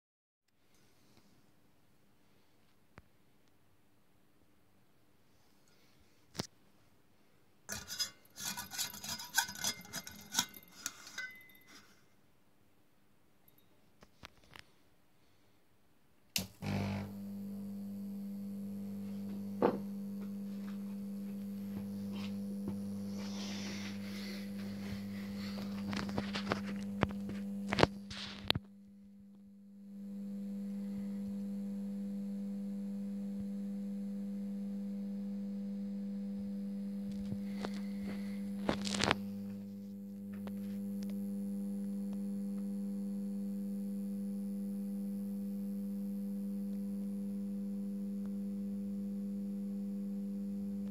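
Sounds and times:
electrical hum: 16.2s - 50.9s.

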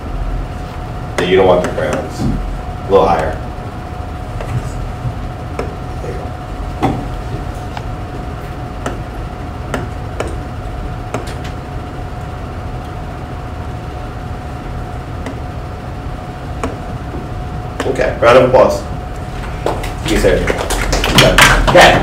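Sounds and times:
steady hum and low rumble: 0.0s - 22.0s.

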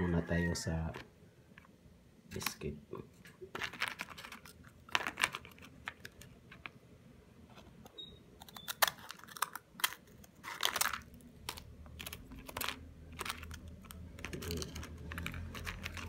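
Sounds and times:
crackers clicking in plastic container: 3.5s - 6.8s, 8.4s - 16.0s
scissors cutting a cracker: 8.4s - 12.8s.

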